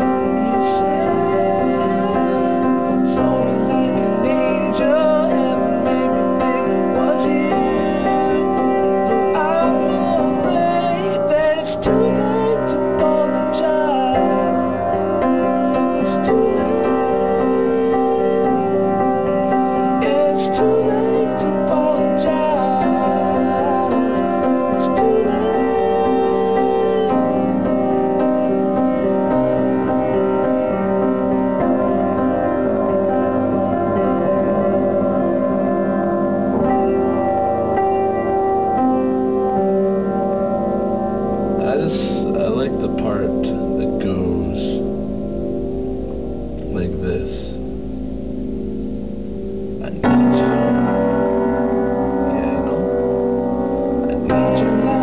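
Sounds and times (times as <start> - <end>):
man singing a pop ballad: 0.0 - 18.1, 19.8 - 27.2, 41.6 - 44.8, 54.1 - 55.0
piano chords: 0.0 - 55.0.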